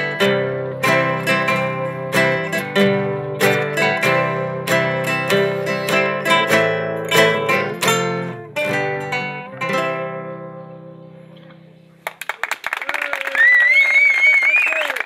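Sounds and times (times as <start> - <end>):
acoustic guitars strumming chords: 0.0 - 12.1
people clapping: 12.0 - 15.0.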